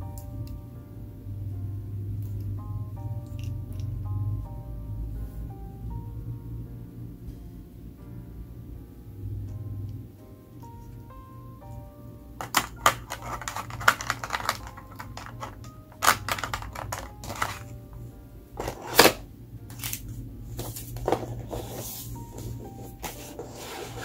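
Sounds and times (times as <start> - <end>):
soft background music: 0.0 - 24.0.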